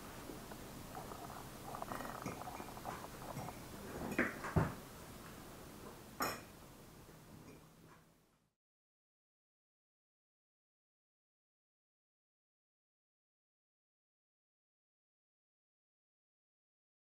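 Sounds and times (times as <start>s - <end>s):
cutlery clinking on plates: 2.2s - 4.7s, 6.2s - 6.5s.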